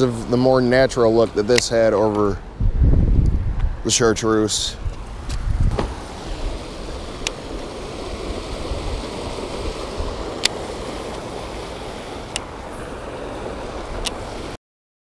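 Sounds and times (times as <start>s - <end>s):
river water rushing over rocks: 5.1s - 14.6s.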